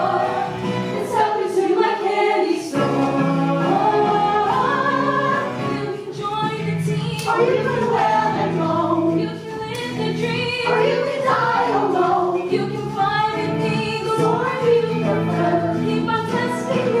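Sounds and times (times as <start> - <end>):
female voices singing together: 0.0 - 17.0
instrumental accompaniment: 0.0 - 17.0.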